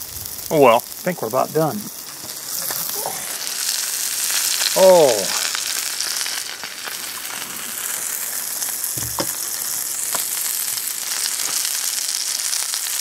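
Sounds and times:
patty sizzling in grease: 0.0s - 13.0s
low thump: 9.0s - 9.4s.

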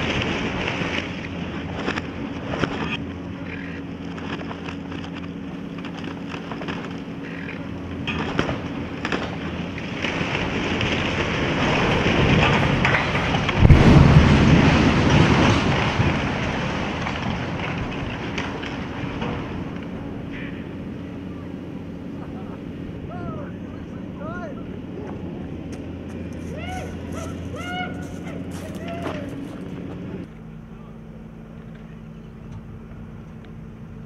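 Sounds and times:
low engine hum: 0.0s - 34.0s
rumble and heavy crash: 8.0s - 23.1s.

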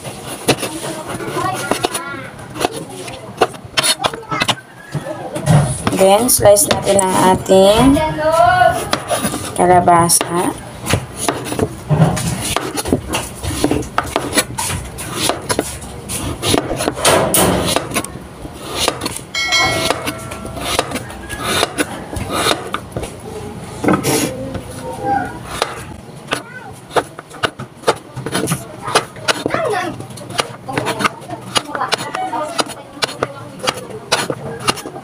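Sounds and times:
knife chopping on cutting board: 13.5s - 14.5s, 15.2s - 18.0s, 18.7s - 19.2s, 19.8s - 22.8s, 25.5s - 29.6s, 30.3s - 34.9s
short electronic chime: 19.4s - 20.8s.

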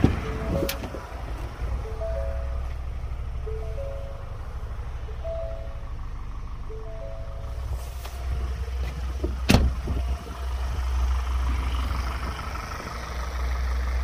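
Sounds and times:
steady low rumble: 0.0s - 14.0s
van door slamming: 9.2s - 10.1s.

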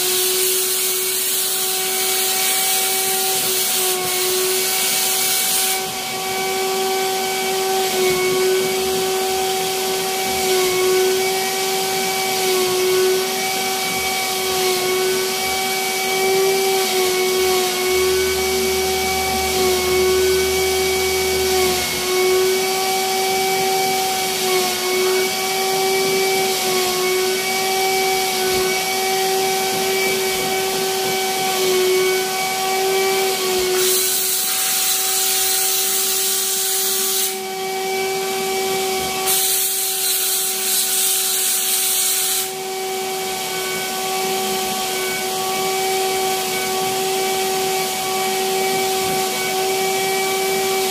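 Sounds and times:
vacuum machine motor whine: 0.0s - 50.9s
air hissing through nozzle: 33.8s - 37.4s, 39.3s - 42.6s.

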